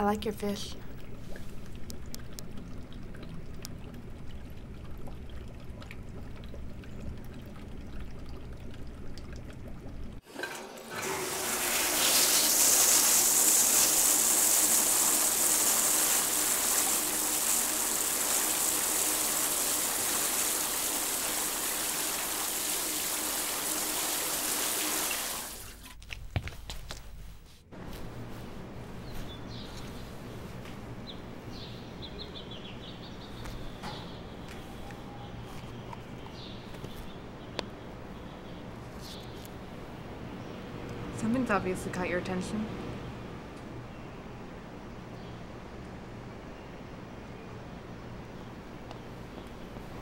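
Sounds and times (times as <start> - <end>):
shower head spraying water: 10.4 - 25.8.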